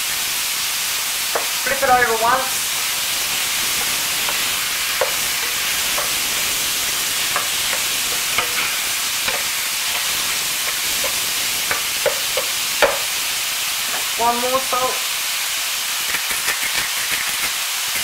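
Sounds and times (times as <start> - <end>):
meat sizzling in a frying pan: 0.0 - 18.0
spatula scraping and tapping pan: 1.3 - 1.6, 3.8 - 13.2.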